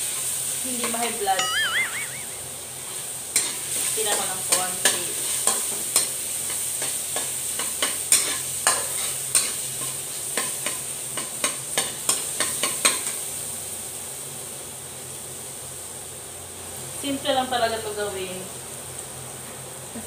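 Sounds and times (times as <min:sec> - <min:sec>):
garlic sizzling in butter: 0:00.0 - 0:20.0.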